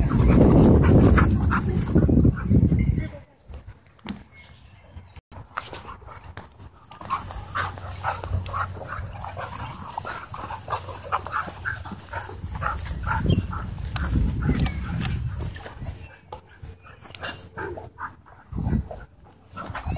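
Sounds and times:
dogs yipping and growling: 6.9s - 13.7s.

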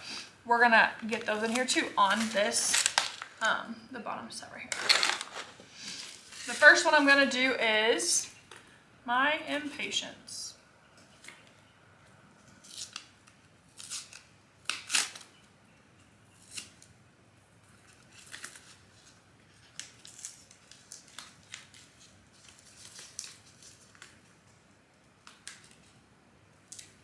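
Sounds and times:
paper packet crinkling and tearing: 1.0s - 3.6s, 4.7s - 6.9s, 12.6s - 15.4s, 17.8s - 24.6s.

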